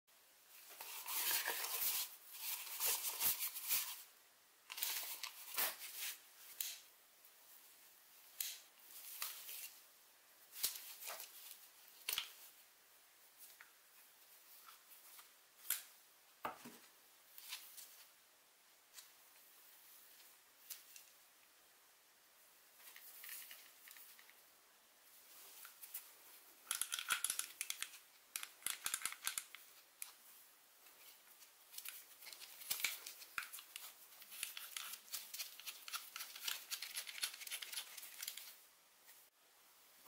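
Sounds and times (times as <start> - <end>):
paper rustling and crinkling: 0.6 - 4.0, 31.0 - 38.6.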